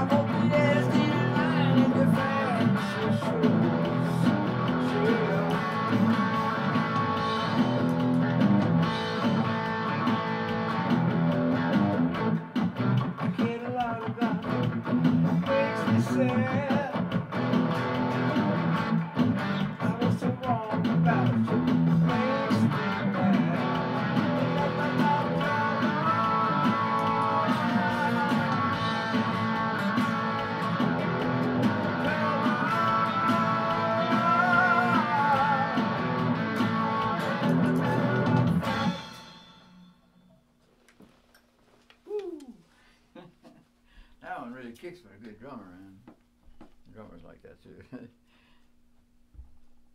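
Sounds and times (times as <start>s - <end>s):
electric guitar melody: 0.0s - 39.6s.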